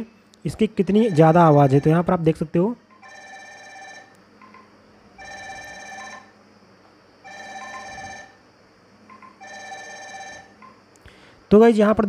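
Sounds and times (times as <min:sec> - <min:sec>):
smartwatch ringtone: 0:00.8 - 0:02.0, 0:03.0 - 0:04.1, 0:05.2 - 0:06.3, 0:07.3 - 0:08.4, 0:09.4 - 0:10.5.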